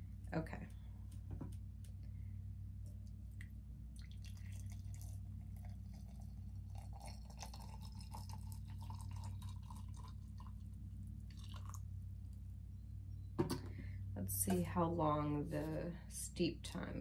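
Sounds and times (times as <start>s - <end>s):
water pouring into glass mug: 4.0s - 10.7s, 11.3s - 11.8s.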